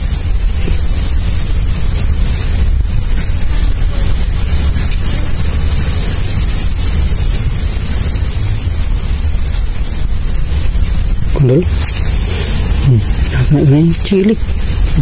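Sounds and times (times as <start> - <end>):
high-pitched whine: 0.0 - 15.0
wind buffeting microphone: 0.0 - 15.0.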